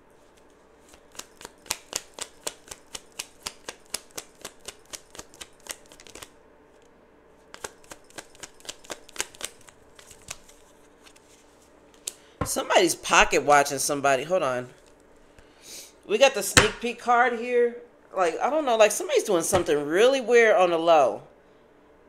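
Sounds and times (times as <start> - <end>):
cards being shuffled: 0.2 - 6.9, 7.5 - 12.2.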